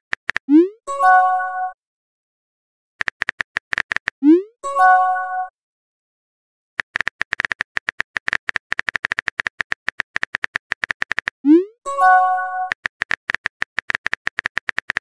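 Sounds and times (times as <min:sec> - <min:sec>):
keyboard tap clicks: 0:03.0 - 0:04.1, 0:12.7 - 0:15.0
message sent chime: 0:04.4 - 0:05.5, 0:11.9 - 0:12.7.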